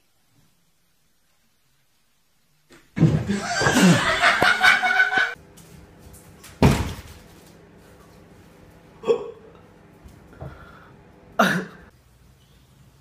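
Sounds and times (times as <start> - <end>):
people laughing loudly: 3.3 - 5.4.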